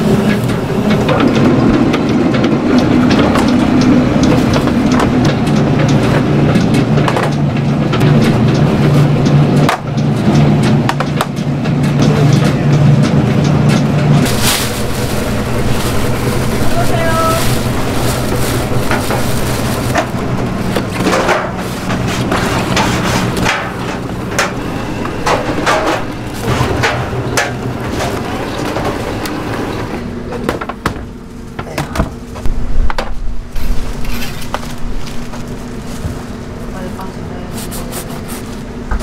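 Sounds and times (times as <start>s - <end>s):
vegetable shredder humming: 0.0s - 32.8s
metal baking trays clattering: 9.6s - 30.6s
cabbage and plastic bag rustling: 14.2s - 29.0s, 31.3s - 38.8s.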